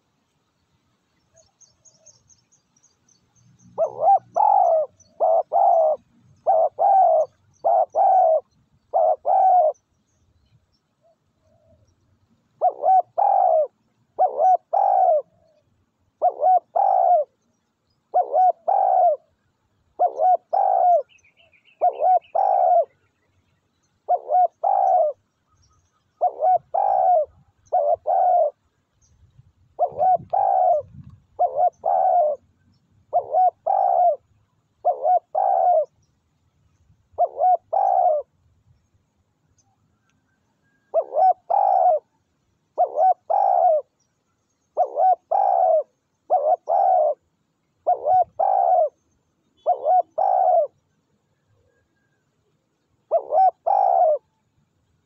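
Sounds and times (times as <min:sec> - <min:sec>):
dove cooing: 0:03.7 - 0:09.9, 0:12.5 - 0:17.4, 0:18.0 - 0:23.1, 0:24.0 - 0:25.3, 0:26.1 - 0:28.7, 0:29.6 - 0:36.0, 0:37.1 - 0:38.3, 0:40.7 - 0:44.0, 0:44.7 - 0:50.9, 0:53.0 - 0:54.4.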